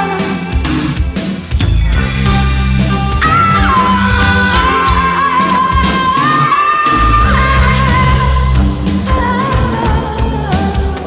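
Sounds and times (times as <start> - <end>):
held high melody note: 0.0 - 8.1
song with steady bass line: 0.0 - 11.0.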